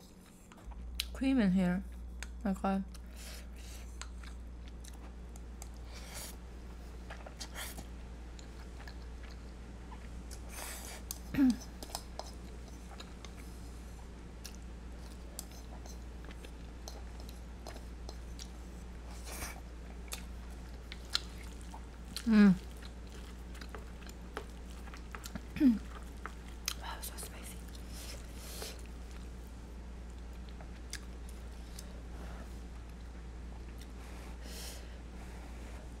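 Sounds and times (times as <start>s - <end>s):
person humming mm: 11.3s - 11.9s, 25.5s - 25.9s.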